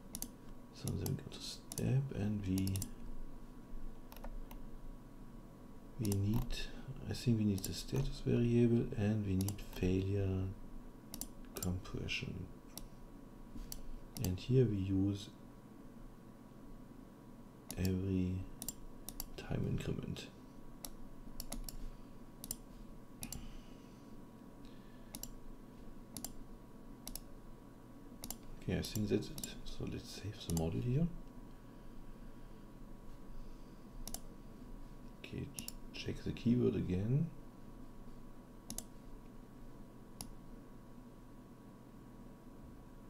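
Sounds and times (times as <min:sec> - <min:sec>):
faint electrical hum: 0:00.0 - 0:43.0
computer mouse clicking: 0:00.1 - 0:00.3, 0:02.6 - 0:02.9, 0:04.1 - 0:04.6, 0:06.0 - 0:06.6, 0:07.5 - 0:08.1, 0:09.4 - 0:09.8, 0:11.1 - 0:11.7, 0:13.7 - 0:14.4, 0:18.6 - 0:19.3, 0:20.8 - 0:21.8, 0:22.4 - 0:22.6, 0:23.2 - 0:23.4, 0:25.1 - 0:25.4, 0:26.1 - 0:26.4, 0:27.0 - 0:27.3, 0:28.2 - 0:29.5, 0:34.0 - 0:34.3, 0:35.6 - 0:35.8, 0:38.7 - 0:38.9.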